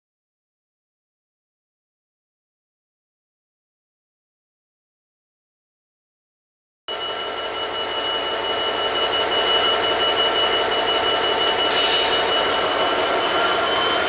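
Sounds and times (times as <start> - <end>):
diesel locomotive engine whine: 6.9 - 14.0.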